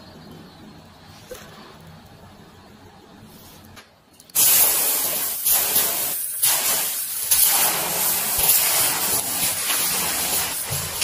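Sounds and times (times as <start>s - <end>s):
hot metal hissing steam: 4.4s - 11.0s.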